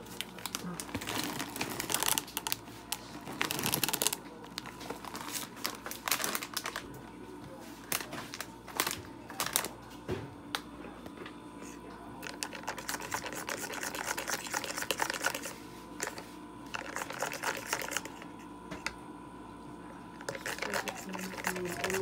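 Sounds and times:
whisk clicking against bowl: 0:20.2 - 0:22.0.

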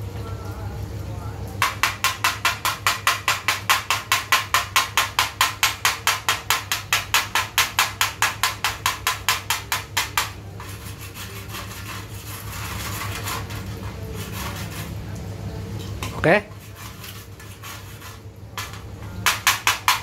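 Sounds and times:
scraping on metal plate: 0:01.6 - 0:15.2, 0:16.0 - 0:20.0
chipping hammer on steel plate: 0:18.6 - 0:20.0.

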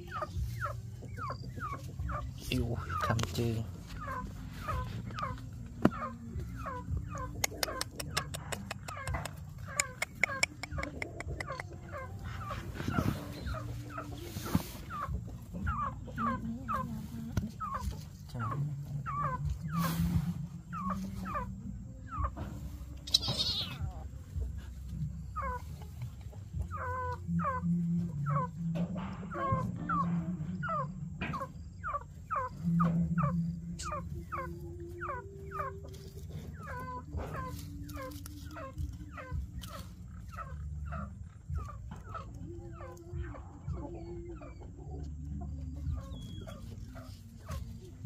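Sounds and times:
young pets crying: 0:23.0 - 0:24.0.

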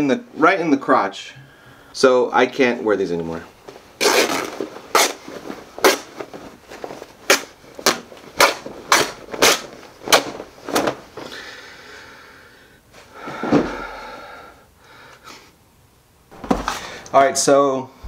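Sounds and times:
fabric ripping: 0:04.0 - 0:11.1.

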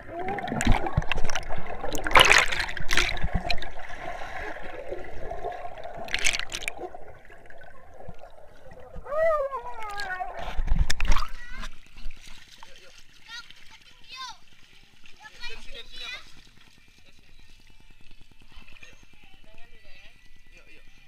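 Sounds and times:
water splashes: 0:00.0 - 0:16.8
muffled underwater sloshing and bubbling: 0:00.0 - 0:17.4
muffled falling cry: 0:09.0 - 0:10.6.

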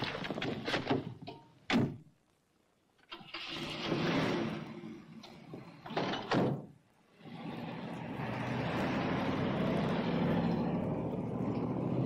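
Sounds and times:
car engine starting and running: 0:03.1 - 0:06.2, 0:07.1 - 0:12.0.

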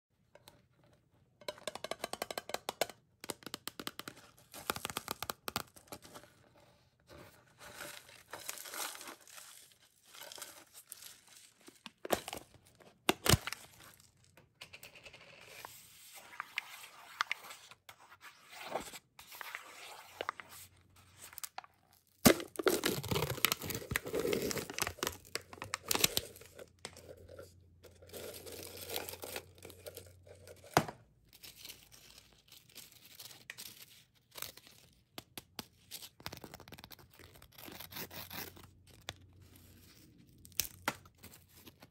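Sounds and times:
foil seal crinkling and tearing: 0:21.3 - 0:26.6.

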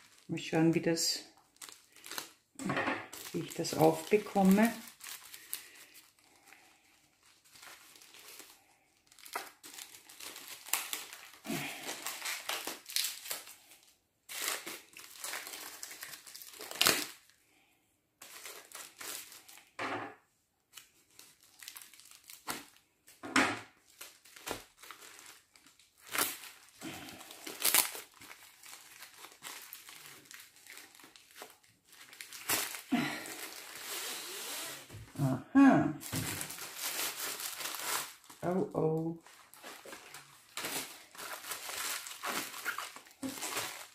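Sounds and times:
plastic mailer bag crinkling: 0:00.0 - 0:17.4, 0:18.2 - 0:19.8, 0:20.7 - 0:35.0, 0:36.0 - 0:43.9
packing tape ripping: 0:07.5 - 0:17.3, 0:20.7 - 0:22.8, 0:23.9 - 0:35.0, 0:36.0 - 0:38.4, 0:39.3 - 0:43.9.

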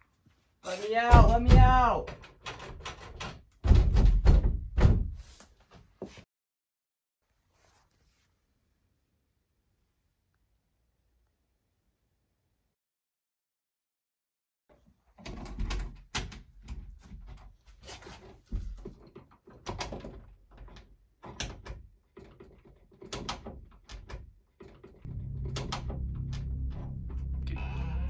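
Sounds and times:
door lock rattling and clicking: 0:01.5 - 0:04.4, 0:19.1 - 0:26.4
low droning music: 0:25.1 - 0:28.0.

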